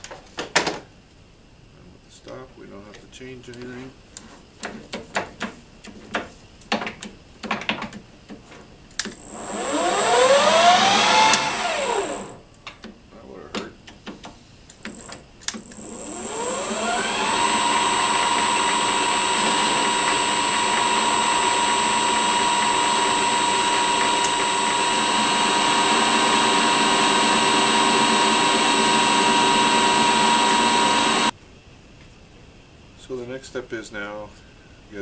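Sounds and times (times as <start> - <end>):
metal lathe whining: 9.2 - 12.4, 14.9 - 31.3
lathe switch click: 17.5 - 31.1.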